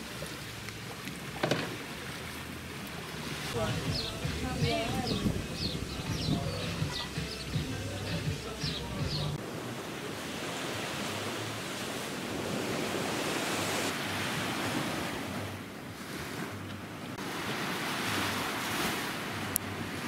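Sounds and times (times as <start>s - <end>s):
small waves breaking on beach: 0.0s - 5.7s, 9.4s - 20.0s
wind buffeting microphone: 3.4s - 9.4s.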